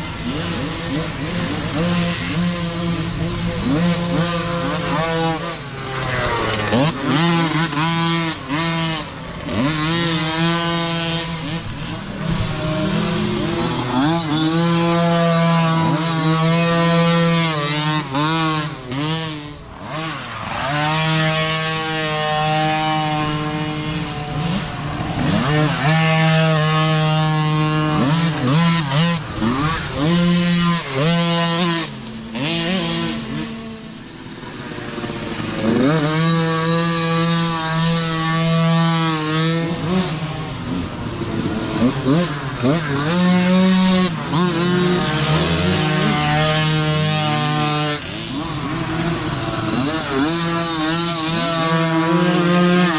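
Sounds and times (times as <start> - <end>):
dirt bike engines revving: 0.0 - 52.9.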